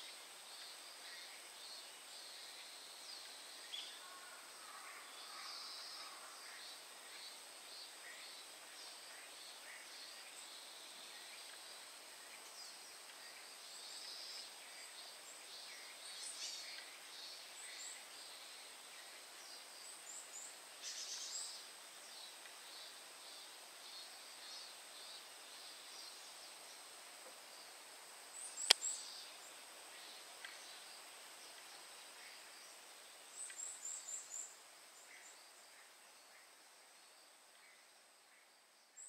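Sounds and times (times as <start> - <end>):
faint bird chirps: 0.0 - 39.0
sharp click: 28.6 - 28.9.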